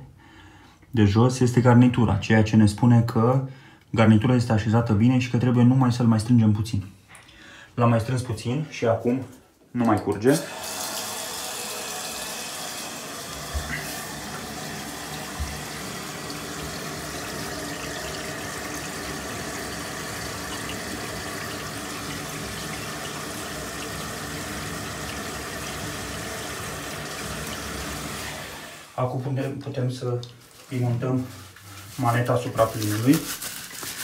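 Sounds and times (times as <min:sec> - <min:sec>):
water pouring into bathtub: 0:10.3 - 0:28.9.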